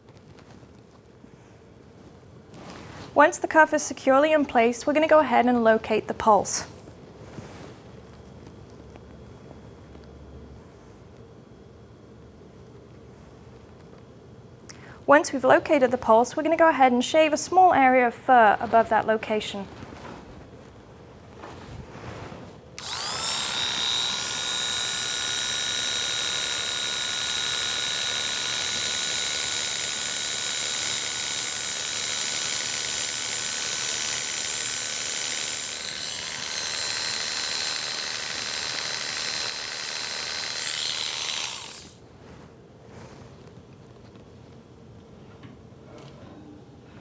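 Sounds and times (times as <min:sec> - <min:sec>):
electric hair clippers whining: 0:22.8 - 0:42.0.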